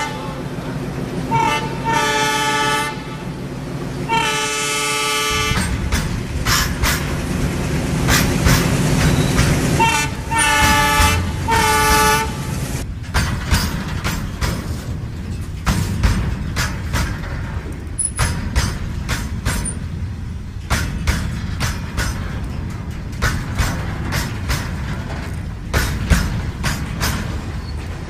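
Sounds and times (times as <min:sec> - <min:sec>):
diesel locomotive horn blasts: 0:00.0 - 0:03.4, 0:04.0 - 0:05.8, 0:09.1 - 0:12.8
freight train rumbling past: 0:00.0 - 0:28.0
rail clicks: 0:00.0 - 0:28.0.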